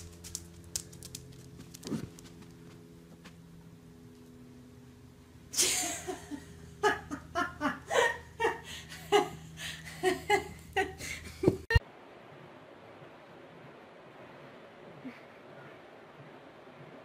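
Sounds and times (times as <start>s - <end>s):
person laughing hard: 5.6s - 11.8s.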